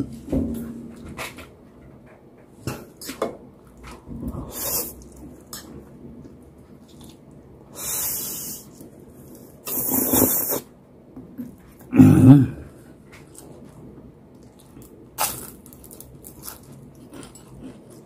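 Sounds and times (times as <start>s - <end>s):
noodles slurped: 9.6s - 10.7s.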